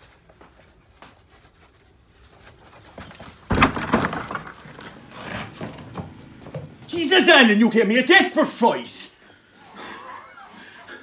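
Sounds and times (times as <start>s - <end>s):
door crashing open: 3.4s - 6.2s.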